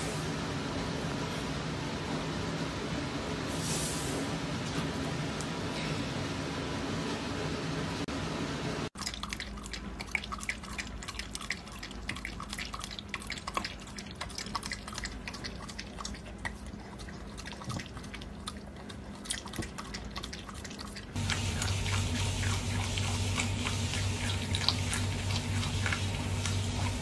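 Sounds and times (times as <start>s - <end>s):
dog lapping from metal bowl: 9.0s - 27.0s.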